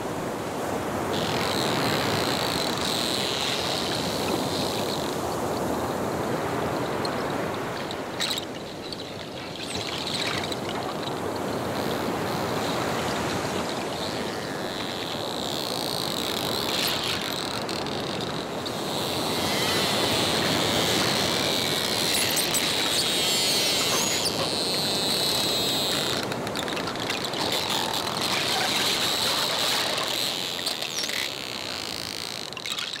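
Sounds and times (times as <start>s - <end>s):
underwater water noise: 0.0s - 33.0s
dolphins whistling and chirping: 6.6s - 33.0s
dolphin clicks: 14.4s - 33.0s.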